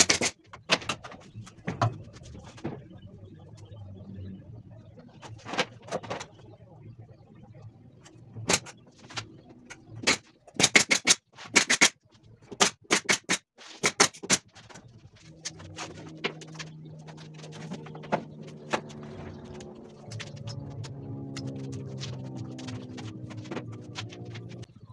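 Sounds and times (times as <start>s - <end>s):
steady low hum: 15.0s - 24.9s.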